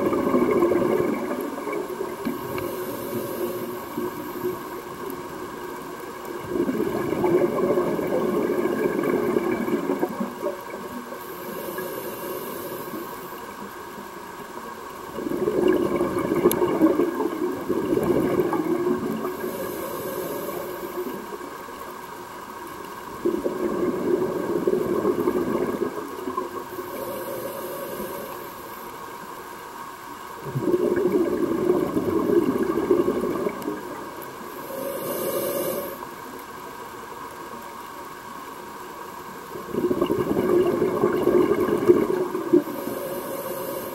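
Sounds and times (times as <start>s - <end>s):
exhaled bubbles rushing: 0.0s - 11.1s, 15.1s - 21.6s, 23.1s - 27.0s, 30.4s - 36.0s, 39.5s - 43.9s
regulator inhale hiss: 2.2s - 5.2s, 10.4s - 13.7s, 19.1s - 21.5s, 26.6s - 29.3s, 34.4s - 36.6s, 42.4s - 43.9s.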